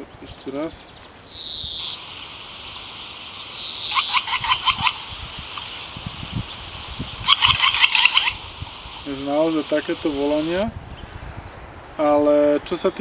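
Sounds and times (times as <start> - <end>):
woodpecker calling sharp notes: 1.0 - 11.2.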